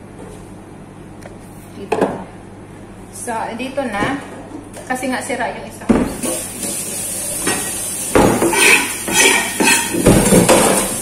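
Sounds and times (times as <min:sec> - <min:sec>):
tap water running: 0:06.0 - 0:11.0
kitchenware clattering in a metal sink: 0:06.2 - 0:11.0.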